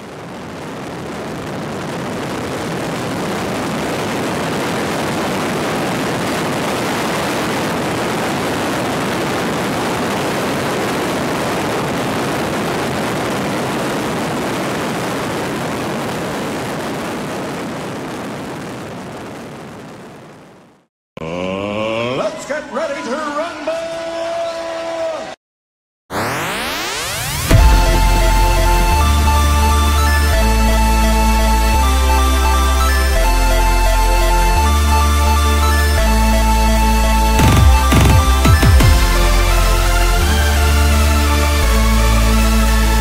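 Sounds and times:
steady rushing noise: 0.0 - 19.6.

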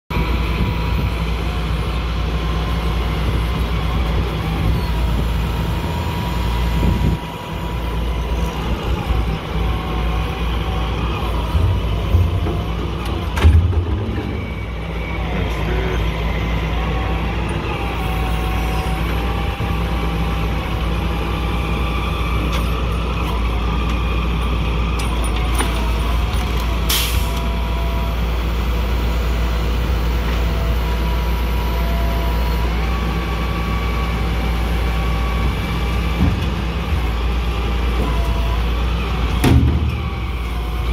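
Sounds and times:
diesel engine running: 0.1 - 40.9
hydraulic whine: 0.1 - 40.9.

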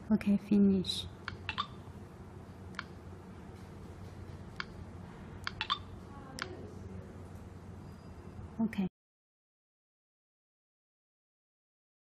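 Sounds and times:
faint steady hum: 0.0 - 8.9
stylus tapping touchscreen: 1.2 - 1.8, 4.3 - 4.8, 5.4 - 6.5.

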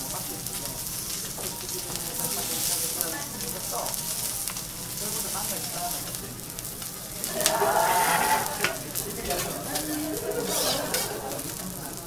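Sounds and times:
fish sizzling on a griddle: 0.0 - 12.0.

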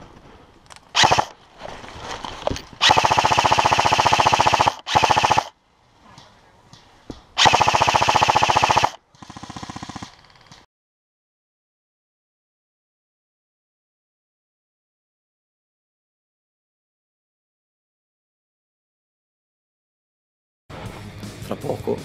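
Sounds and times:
airsoft rifle firing bursts: 1.0 - 1.4, 2.8 - 5.6, 7.4 - 10.2.

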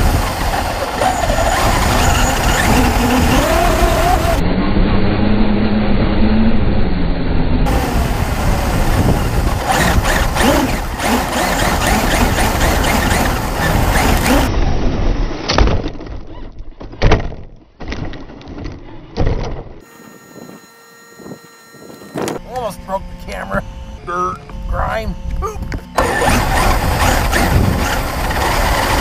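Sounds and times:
rc truck motor and tyre rush: 0.0 - 5.1, 7.6 - 15.5, 24.8 - 29.0
faint steady tones: 19.8 - 26.0.

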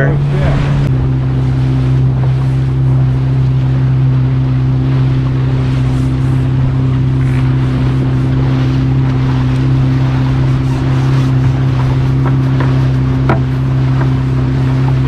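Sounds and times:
boat engine running: 0.0 - 15.0
hull rushing through water: 0.0 - 15.0.

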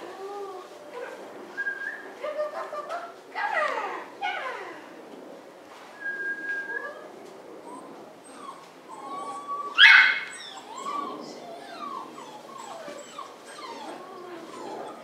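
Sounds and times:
puppy whining: 7.6 - 15.0
puppy yelping: 7.7 - 15.0.

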